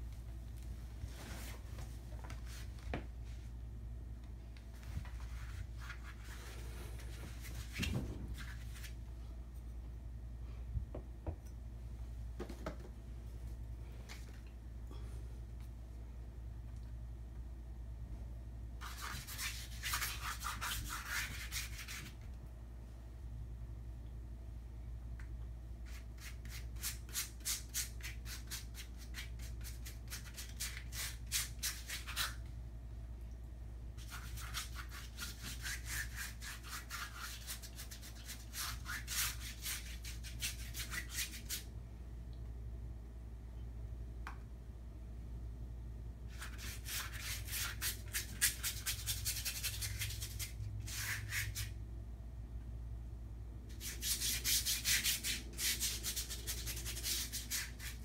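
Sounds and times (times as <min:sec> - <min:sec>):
paintbrush scrubbing on paper: 0:34.0 - 0:41.6, 0:46.3 - 0:51.7, 0:53.7 - 0:58.0.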